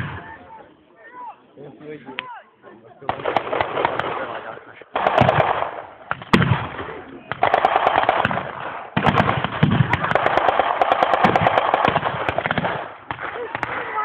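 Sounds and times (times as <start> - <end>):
automatic gunfire bursts: 3.1 - 4.3, 5.0 - 6.7, 7.4 - 13.7
loud gunshot crack: 5.0 - 14.0.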